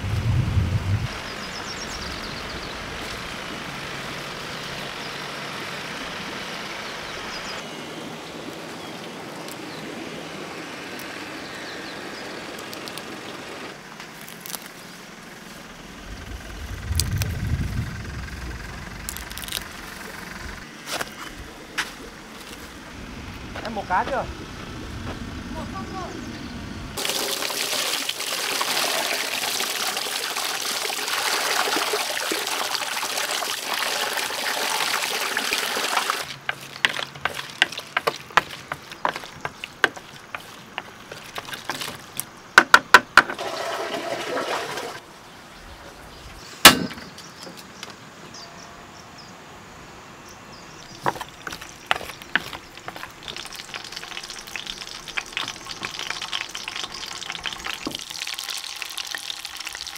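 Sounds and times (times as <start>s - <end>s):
fish splashing in a bowl: 27.0s - 42.2s, 51.0s - 59.9s
water rushing: 27.0s - 42.2s, 43.2s - 45.0s, 51.2s - 59.9s
sharp knock: 46.7s - 47.1s.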